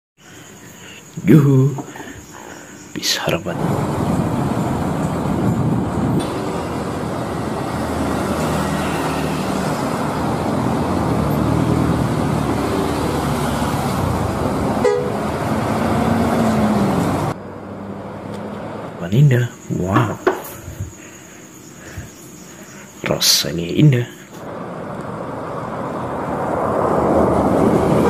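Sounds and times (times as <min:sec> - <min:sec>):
bus engine noise: 0:03.1 - 0:21.1, 0:21.7 - 0:28.0
horn honking: 0:14.8 - 0:15.7.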